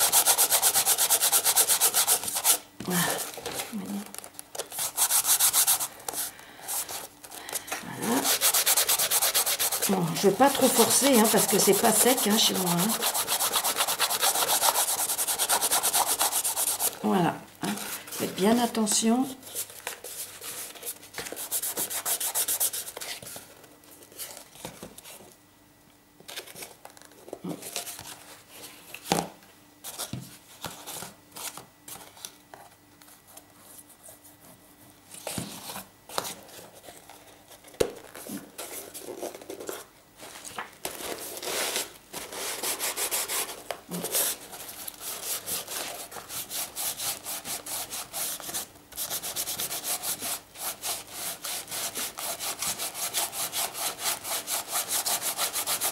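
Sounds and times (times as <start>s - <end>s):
hand rubbing paper on cardboard: 0.0s - 2.6s, 4.7s - 7.1s, 8.1s - 17.0s.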